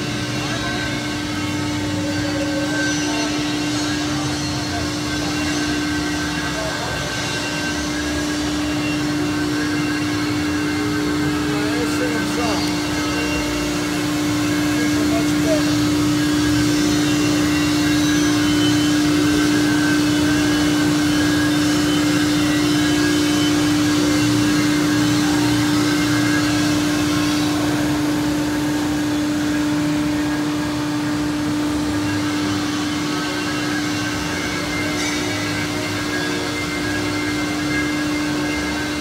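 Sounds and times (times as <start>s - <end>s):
hydraulic power unit humming: 0.0s - 39.0s.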